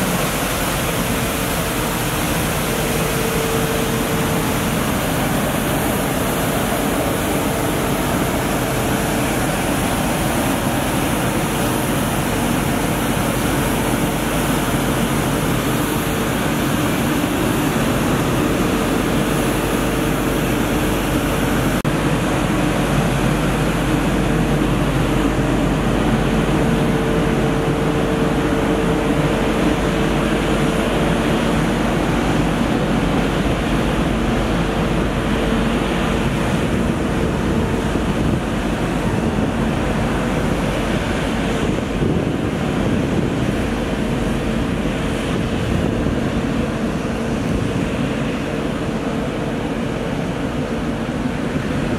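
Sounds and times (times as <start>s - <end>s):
water jets hissing: 0.0s - 42.0s
engine and suction whine: 0.0s - 51.9s.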